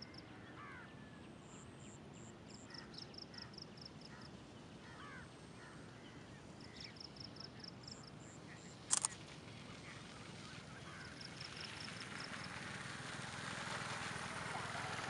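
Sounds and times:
sharp double click: 8.9 - 9.2.

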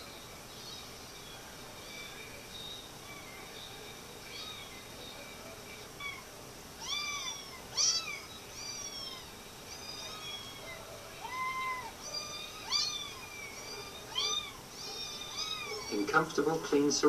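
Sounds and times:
kittens mewing: 4.2 - 4.9, 5.9 - 16.4.

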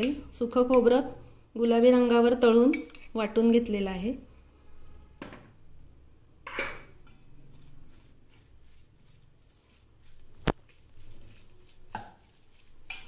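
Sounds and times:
metal spoon stirring in a bowl: 0.0 - 1.1, 2.7 - 3.3, 6.5 - 13.0.

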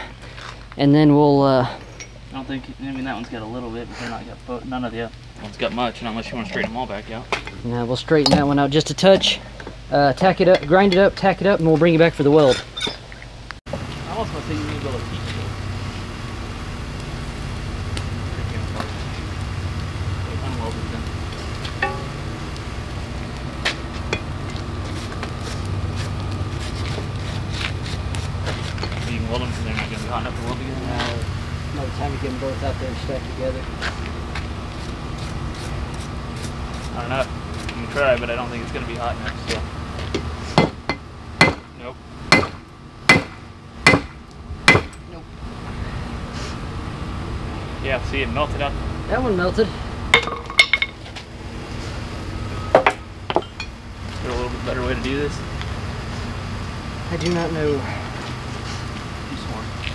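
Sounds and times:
fire crackling hiss: 0.0 - 59.9
forge air blower humming: 13.7 - 59.9
hammer striking steel on anvil: 21.8 - 22.2, 40.6 - 41.7, 42.3 - 45.0.

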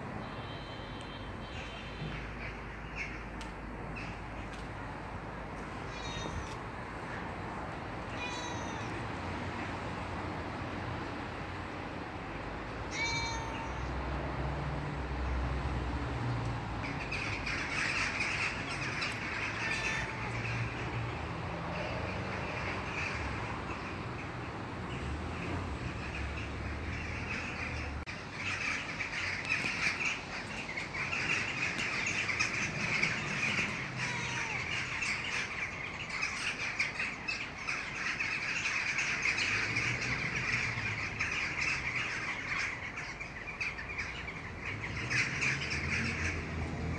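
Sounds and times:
short bird calls: 0.2 - 3.4
birds chirping chorus: 0.2 - 4.9, 16.4 - 46.9.

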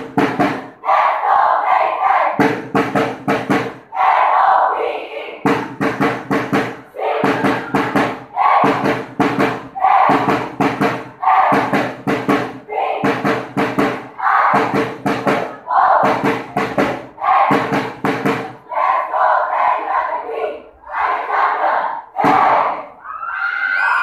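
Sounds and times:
drum hits: 0.0 - 0.8, 2.3 - 3.9, 5.4 - 18.6, 22.2 - 22.7
group shouting: 3.9 - 5.2, 6.9 - 8.8, 9.8 - 10.3, 11.2 - 11.7, 14.2 - 14.6
crowd cheering: 6.9 - 8.9, 20.9 - 24.0.

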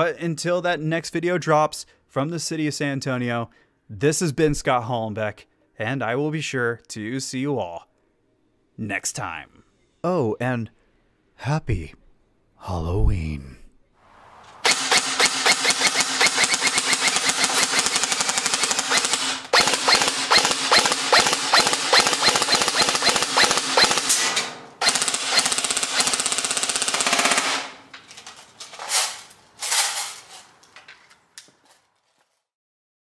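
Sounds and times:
airsoft rifle firing full auto: 14.6 - 27.9.

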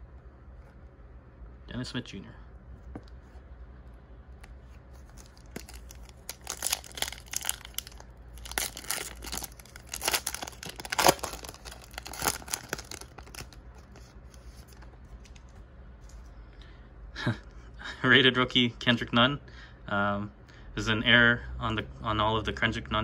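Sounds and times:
foil wrapper tearing and crinkling: 5.0 - 14.8.

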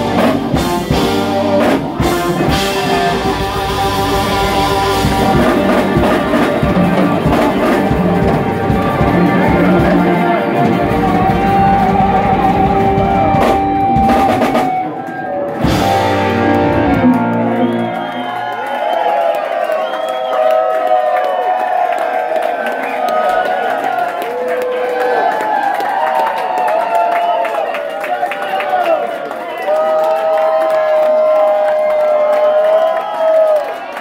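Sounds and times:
rock band playing: 0.0 - 18.7.

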